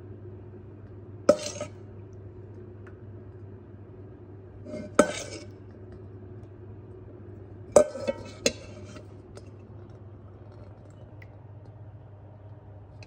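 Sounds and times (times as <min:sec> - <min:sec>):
metal spoon clinking steel bowl: 0:01.3 - 0:01.8, 0:04.7 - 0:05.5, 0:07.8 - 0:09.0.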